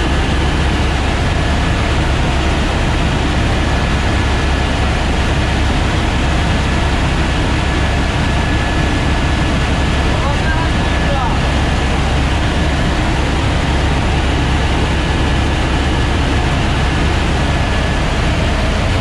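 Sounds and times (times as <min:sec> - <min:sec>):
helicopter rotor and turbine drone: 0:00.0 - 0:19.0
high turbine whine: 0:00.0 - 0:19.0.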